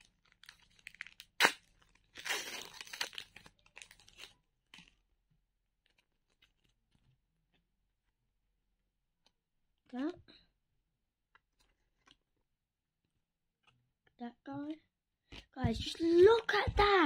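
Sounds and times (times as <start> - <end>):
foil wrapper tearing and crinkling: 0.0 - 4.9.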